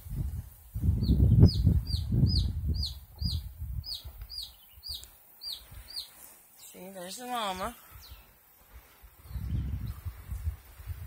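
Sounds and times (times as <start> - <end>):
baby chick peeping: 1.0 - 6.2.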